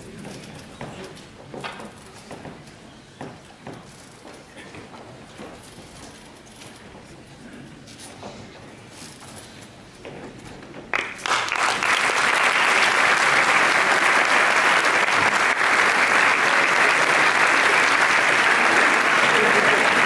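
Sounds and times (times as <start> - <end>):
audience applause: 10.9 - 20.0.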